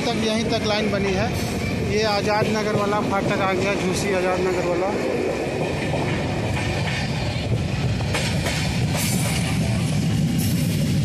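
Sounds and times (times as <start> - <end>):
rumble of train wheels on rails: 0.0 - 11.0
rail joint clicks: 2.2 - 11.0.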